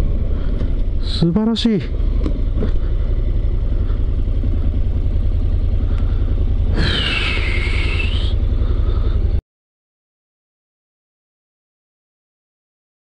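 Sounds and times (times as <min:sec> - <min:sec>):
motorcycle engine low rumble: 0:00.0 - 0:09.4.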